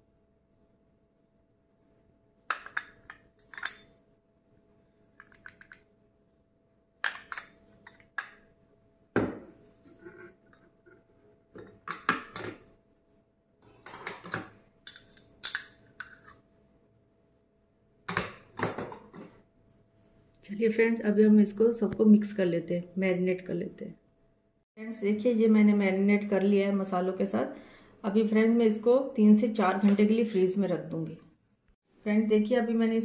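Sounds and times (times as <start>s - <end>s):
glass cups clinking on ceramic plate: 2.5s - 4.0s, 7.1s - 8.4s.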